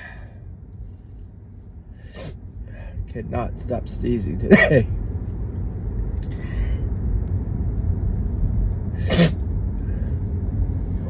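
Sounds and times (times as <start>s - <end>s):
low rumble inside a car: 0.0s - 11.0s
person sneezing: 9.0s - 9.4s.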